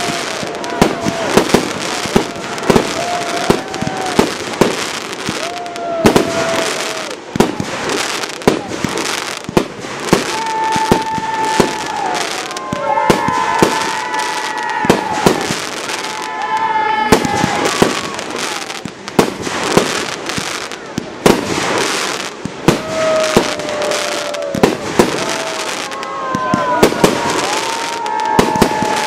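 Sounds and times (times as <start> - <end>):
firework whistles: 0.0 - 29.0
fireworks bangs: 0.0 - 29.0.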